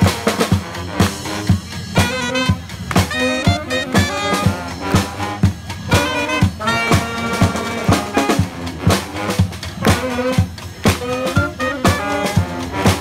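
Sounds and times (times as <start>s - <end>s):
snare drum beat: 0.0s - 13.0s
trombone: 0.0s - 13.0s
soprano saxophone: 2.0s - 8.4s, 9.9s - 13.0s.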